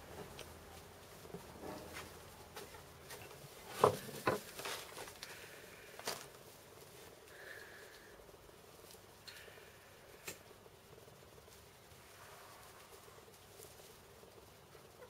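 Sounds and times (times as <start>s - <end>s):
hens scratching in dry soil: 11.0s - 15.0s.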